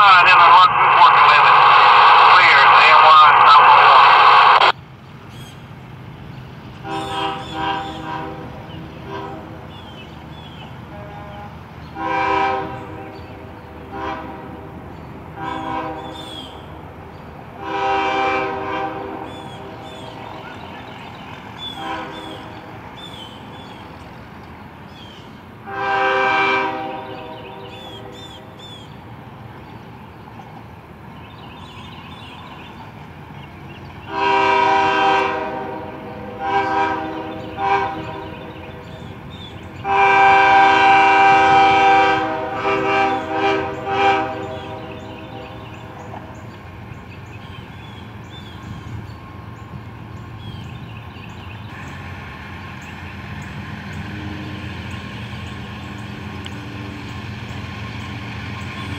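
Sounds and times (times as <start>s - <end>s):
low rumble of train: 0.0s - 58.9s
train air horn blasts: 6.8s - 9.8s, 10.8s - 16.4s, 17.6s - 20.5s, 21.7s - 22.7s, 25.6s - 28.4s, 34.1s - 39.1s, 39.8s - 46.4s.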